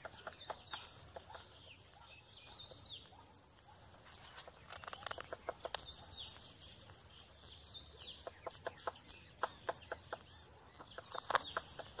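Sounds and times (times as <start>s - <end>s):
woodpecker knocking on wood: 0.0s - 1.6s, 4.4s - 5.9s, 8.2s - 12.0s
bird calls chirping: 0.0s - 12.0s.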